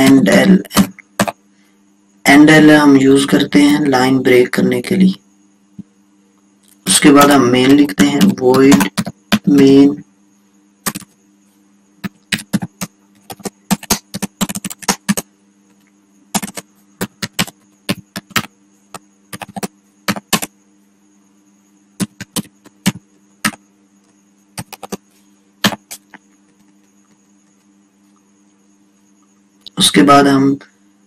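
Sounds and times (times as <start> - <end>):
low electrical hum: 0.0 - 31.0
computer keyboard typing: 0.8 - 1.4, 8.0 - 9.6, 10.8 - 11.1, 12.0 - 15.2, 16.3 - 20.5, 22.0 - 23.6, 24.6 - 25.0, 25.6 - 27.2.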